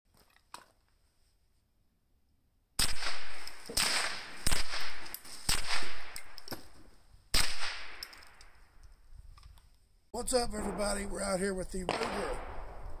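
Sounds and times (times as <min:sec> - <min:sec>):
carbine gunshots with echo: 0:02.8 - 0:06.4, 0:07.3 - 0:08.2, 0:10.4 - 0:13.0.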